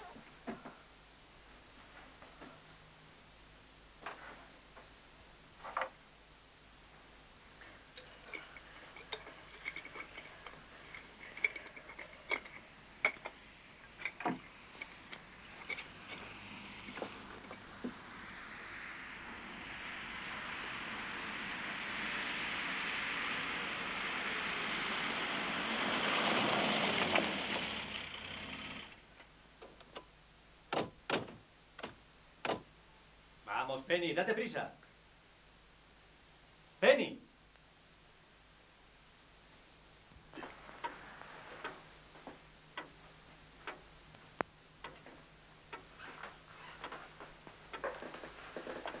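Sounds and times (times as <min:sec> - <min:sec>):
steady rushing hiss: 0:00.0 - 0:49.0.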